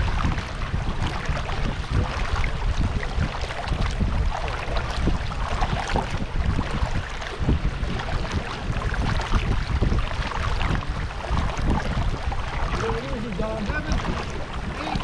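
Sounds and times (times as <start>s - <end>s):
paddles splashing in water: 0.0s - 15.0s
wind buffeting microphone: 0.0s - 15.0s.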